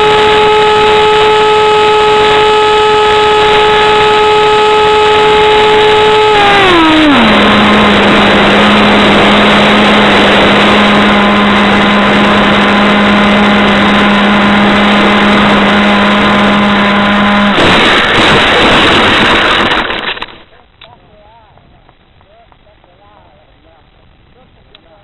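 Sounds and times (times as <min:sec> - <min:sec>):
model plane motor hum: 0:00.0 - 0:20.3
rushing airflow: 0:03.3 - 0:20.4.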